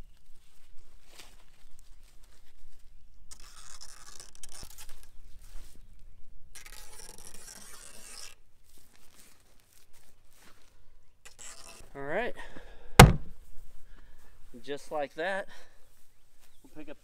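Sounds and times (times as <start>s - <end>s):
netting rustling and scraping: 0.5s - 12.0s.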